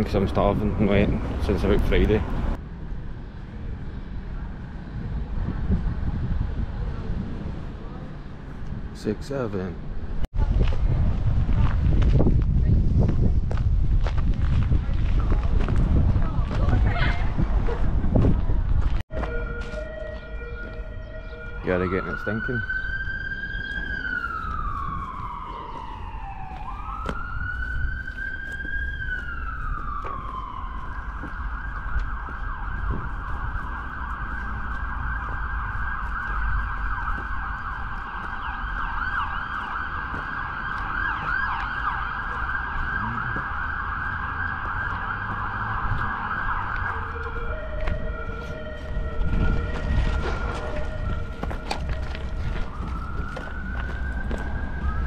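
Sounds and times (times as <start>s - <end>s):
low traffic rumble: 0.0s - 55.0s
emergency vehicle siren: 19.1s - 55.0s.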